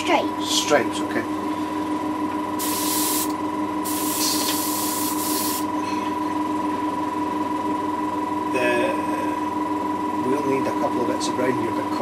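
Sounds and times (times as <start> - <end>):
steady hum: 0.0 - 12.0
airbrush hissing: 2.6 - 5.7.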